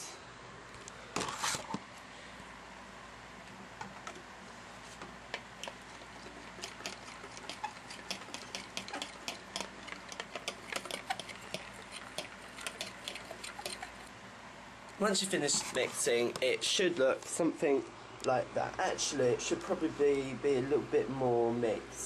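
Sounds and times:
eggs being beaten in a container: 5.6 - 14.1.

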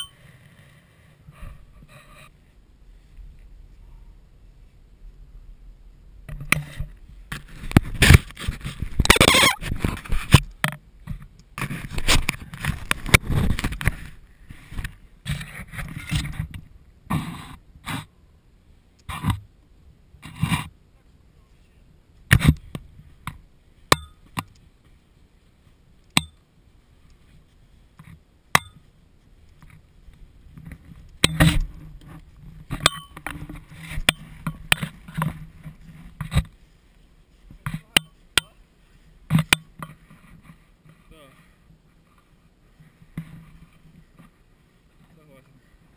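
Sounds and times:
sharp ringing clicks: 0.0 - 0.2, 32.8 - 33.2
rustling and scraping in snow: 0.0 - 18.2, 20.2 - 23.9, 26.6 - 45.9.

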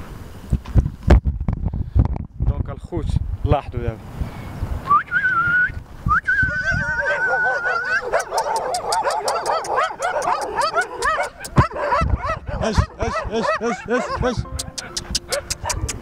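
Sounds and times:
person whistling: 4.9 - 7.8
dogs barking and yipping: 6.6 - 16.0.

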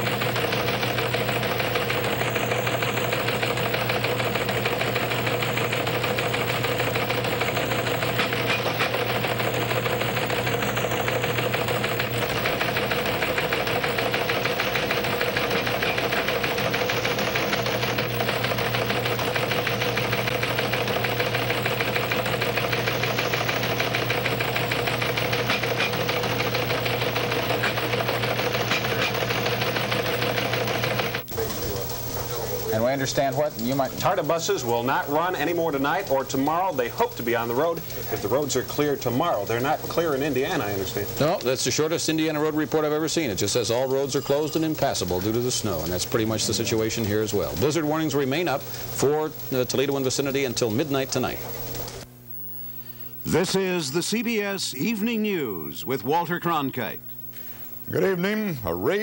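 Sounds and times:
machine clatter: 0.0 - 52.0.

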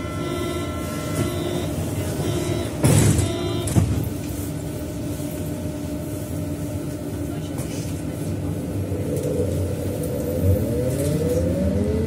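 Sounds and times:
train equipment humming: 0.0 - 11.4.

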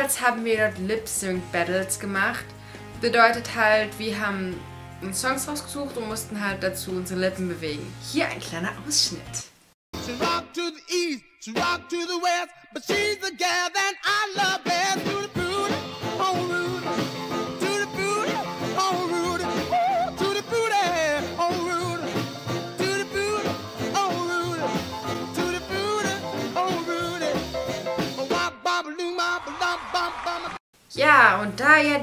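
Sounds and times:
pop song with band and singer: 10.0 - 30.4.

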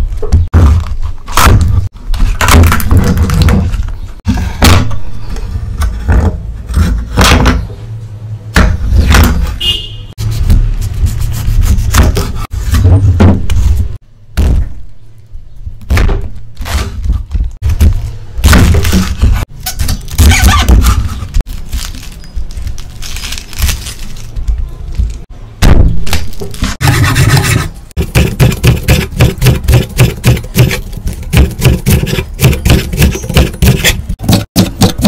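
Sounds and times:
knife chopping cabbage on board: 26.8 - 35.0.

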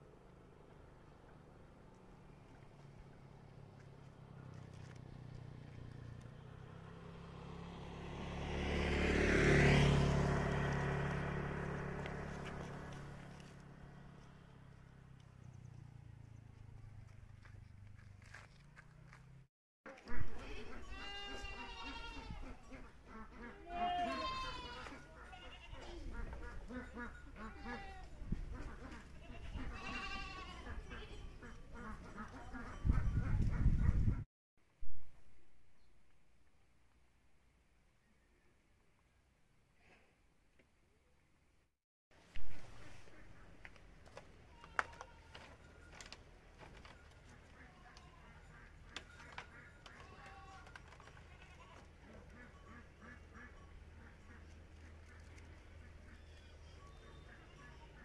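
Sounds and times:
vehicle passing: 0.4 - 19.4
farm animals calling: 19.9 - 34.2, 46.7 - 58.0.

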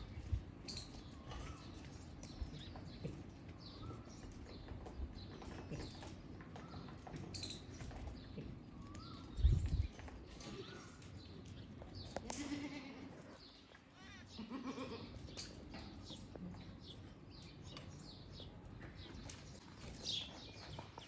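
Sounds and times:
goats bleating: 12.2 - 15.2.

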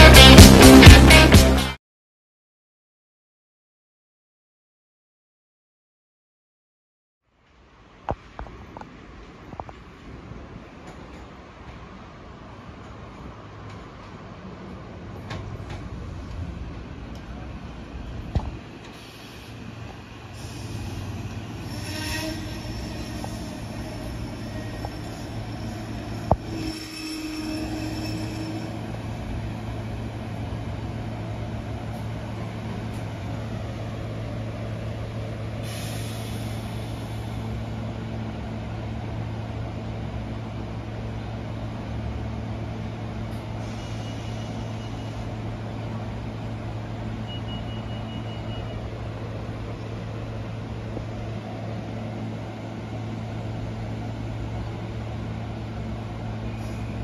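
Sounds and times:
electric train humming: 10.0 - 57.0
air hiss: 18.8 - 26.9, 35.6 - 37.6, 43.4 - 45.2
brake squeal: 18.8 - 30.1, 43.4 - 45.5, 47.2 - 49.4, 56.4 - 57.0
short high beeps: 47.2 - 48.8.

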